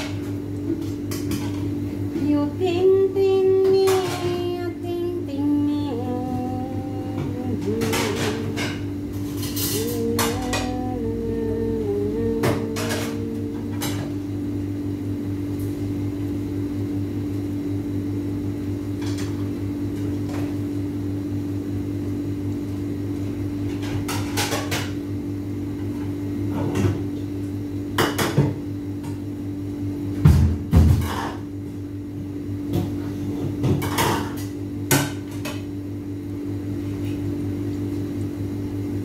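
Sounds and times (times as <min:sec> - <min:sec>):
low hum: 0:00.0 - 0:19.3.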